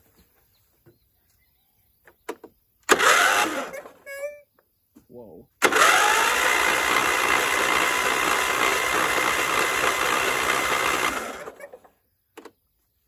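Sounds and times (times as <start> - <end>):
electric starter cranking engine: 2.8 - 4.0, 5.6 - 11.8.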